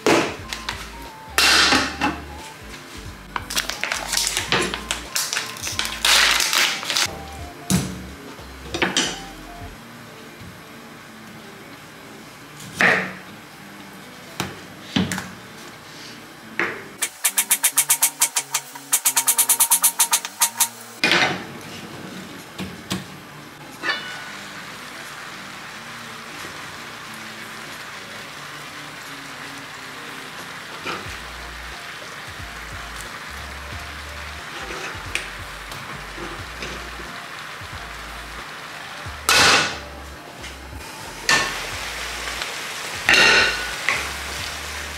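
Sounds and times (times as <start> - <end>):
music with fast ticking beat: 0.4 - 9.8, 17.0 - 20.9, 31.1 - 38.4, 39.0 - 39.5
food sizzling in a frying pan: 17.0 - 21.0, 23.6 - 44.9.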